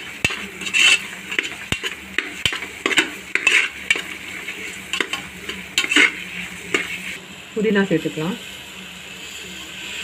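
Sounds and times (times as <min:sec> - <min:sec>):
metal spoon scraping pot: 0:00.0 - 0:07.2
frying sizzle: 0:00.0 - 0:10.0.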